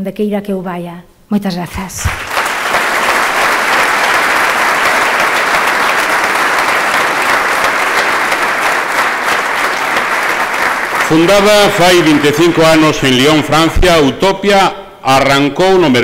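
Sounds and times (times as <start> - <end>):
audience applauding: 2.0 - 14.2.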